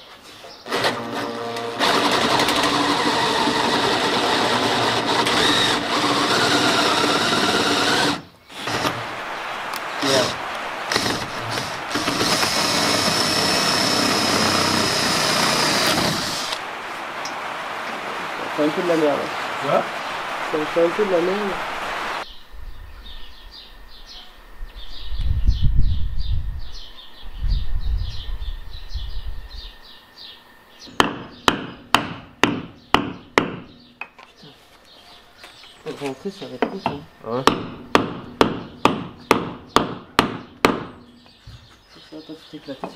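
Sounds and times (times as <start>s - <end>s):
cordless drill whining: 0.7s - 9.1s, 10.0s - 16.6s
birds chirping: 2.6s - 42.9s
hammer strikes: 31.0s - 33.8s, 36.6s - 41.0s.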